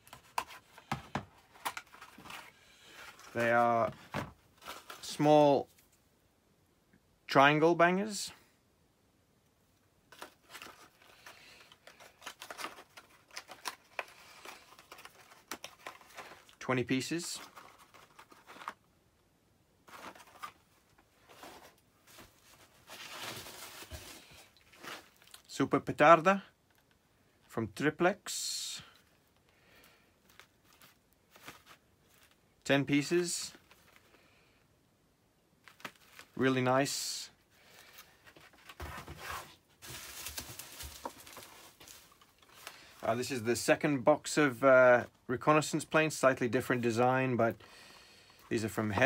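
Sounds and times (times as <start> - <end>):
bubble wrap and plastic rustling: 0.0 - 6.0, 10.1 - 18.9, 19.8 - 25.6, 29.0 - 34.3, 35.6 - 47.6
plastic crinkling: 10.1 - 16.6, 21.2 - 25.5, 37.7 - 43.1.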